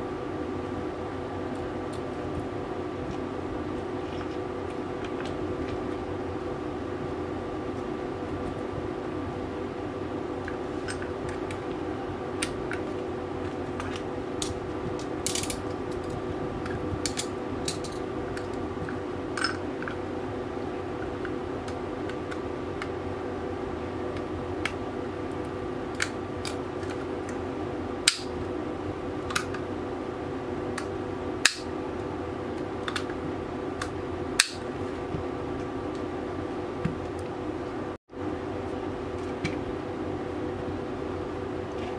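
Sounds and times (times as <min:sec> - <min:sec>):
steady background hum: 0:00.0 - 0:41.9.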